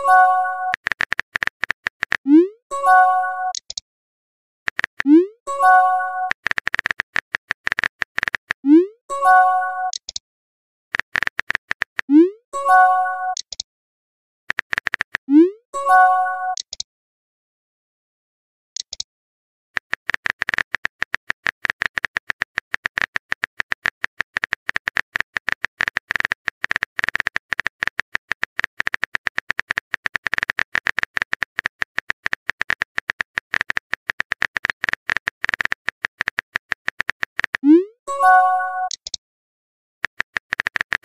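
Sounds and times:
phone keyboard clicks: 0.7s - 2.2s, 3.5s - 3.8s, 6.3s - 8.6s, 9.9s - 10.2s, 10.9s - 12.1s, 13.3s - 13.6s, 14.5s - 15.2s, 18.8s - 19.0s, 19.8s - 37.6s, 38.9s - 39.2s, 40.0s - 41.0s.

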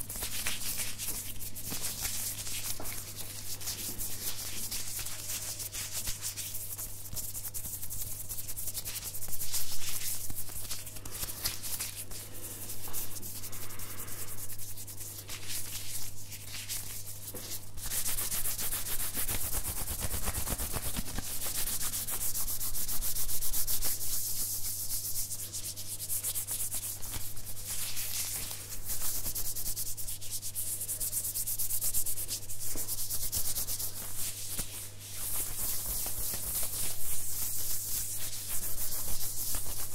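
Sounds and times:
hands rubbing together: 0.0s - 39.9s
steady low hum: 0.0s - 39.9s.

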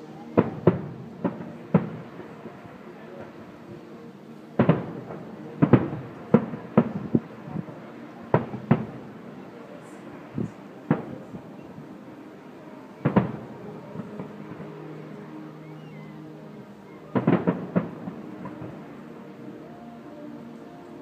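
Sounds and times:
fireworks bursting: 0.0s - 3.8s, 4.6s - 11.8s, 13.0s - 14.8s, 17.1s - 19.0s.

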